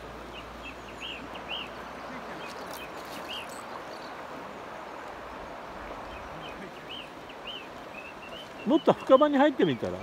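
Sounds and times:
river water over stones: 0.0s - 10.0s.

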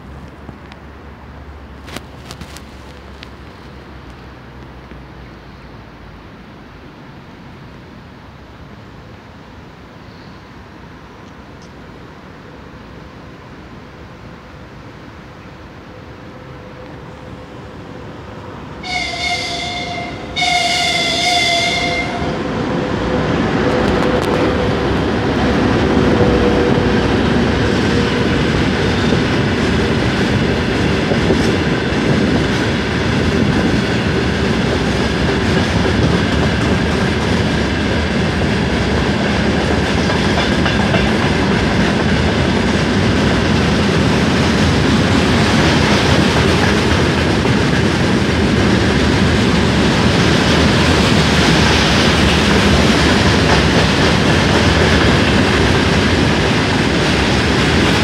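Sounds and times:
freight train rolling past: 0.0s - 58.0s
locomotive horn blasts: 18.8s - 22.4s.

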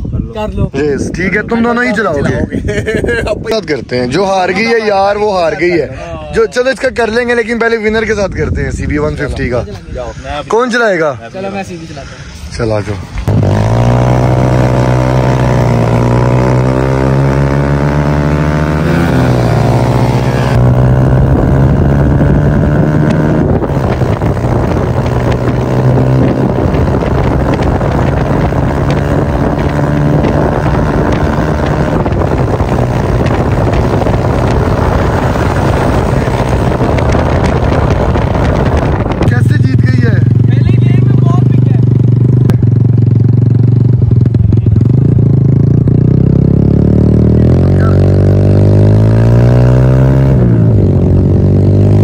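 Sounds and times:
wind on microphone: 0.0s - 6.3s, 7.8s - 10.2s, 13.2s - 43.1s
motorcycle engines at full throttle: 0.0s - 52.0s.

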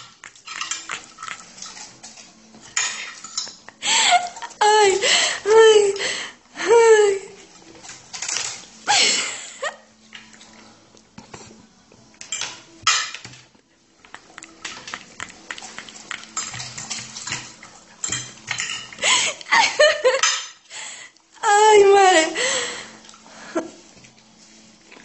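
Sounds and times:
dish clinking as dog eats: 0.0s - 3.7s, 14.1s - 19.0s, 20.1s - 20.7s.

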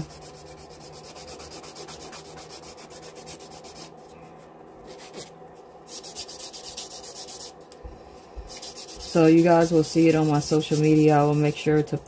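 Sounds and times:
nail file rubbing on nail: 0.0s - 4.0s, 5.9s - 7.6s, 8.5s - 12.0s.

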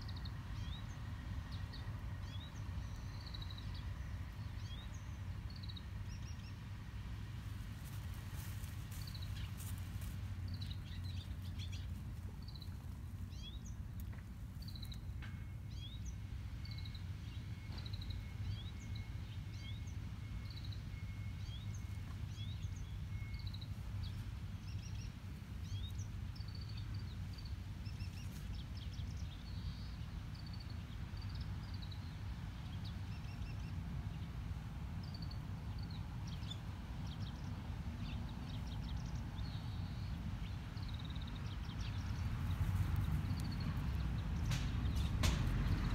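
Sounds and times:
low background rumble: 0.0s - 45.9s
small birds chirping: 7.8s - 34.3s, 35.0s - 45.9s.

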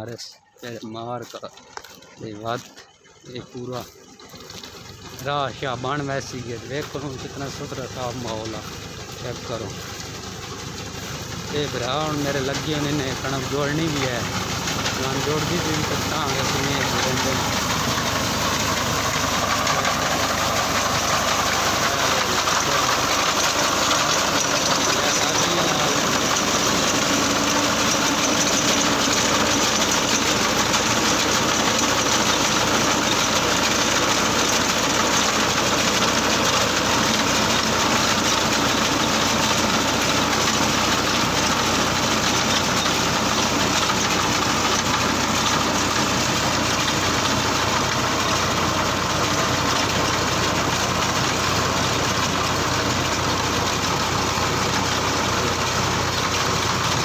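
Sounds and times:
tractor diesel engine under load: 0.0s - 57.0s
cutting blades chattering: 10.5s - 51.8s.

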